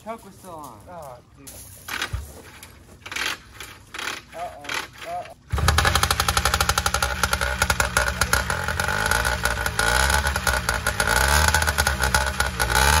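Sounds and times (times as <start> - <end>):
two-stroke engine revving: 3.0 - 13.0.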